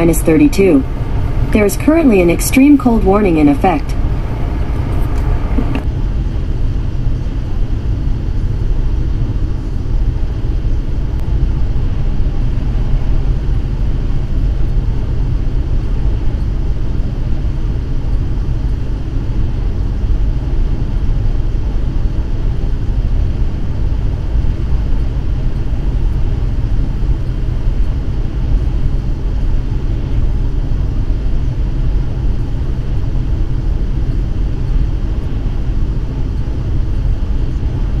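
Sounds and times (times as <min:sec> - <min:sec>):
vehicle engine and road noise: 0:00.0 - 0:05.9.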